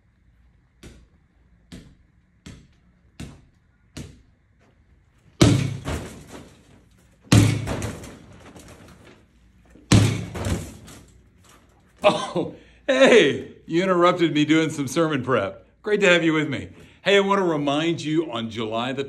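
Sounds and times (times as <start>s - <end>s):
ball rattling on rim: 5.4s - 11.2s.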